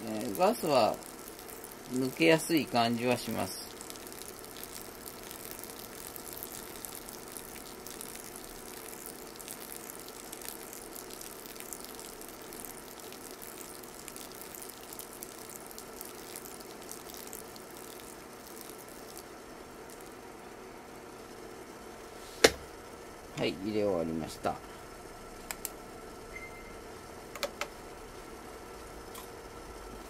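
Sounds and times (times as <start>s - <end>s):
water pouring onto coffee grounds: 0.0s - 20.2s.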